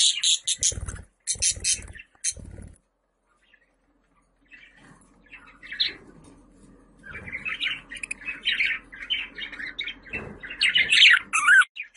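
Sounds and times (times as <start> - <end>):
budgerigar chirping: 0.0 - 2.5, 10.6 - 11.9.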